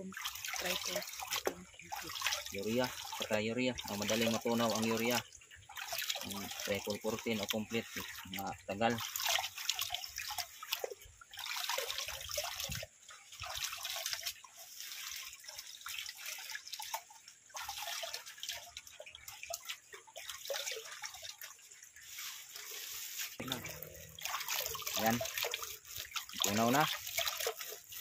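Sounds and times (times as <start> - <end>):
water sloshing in a plastic bucket: 0.0 - 28.0.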